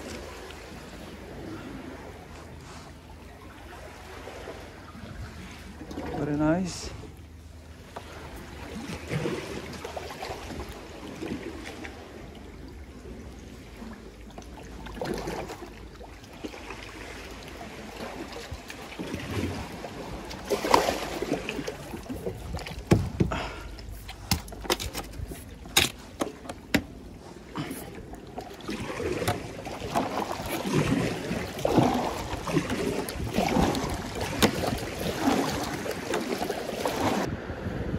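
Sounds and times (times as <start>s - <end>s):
kayak paddle splashing water: 8.0s - 37.3s.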